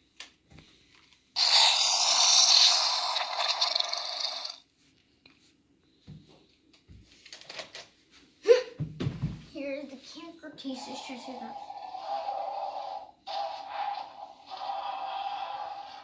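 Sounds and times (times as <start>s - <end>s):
toy dinosaur electronic roar: 1.4s - 4.6s, 11.3s - 16.0s.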